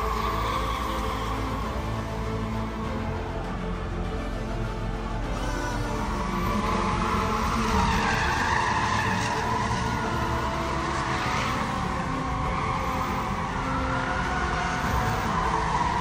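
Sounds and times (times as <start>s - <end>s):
car engines rumbling: 0.0s - 16.0s
tyres squealing: 5.1s - 16.0s.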